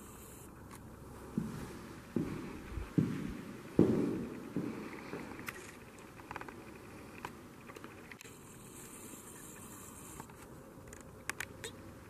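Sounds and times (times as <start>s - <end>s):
faint steady hiss: 0.0s - 12.0s
footsteps on stone floor: 1.2s - 5.7s.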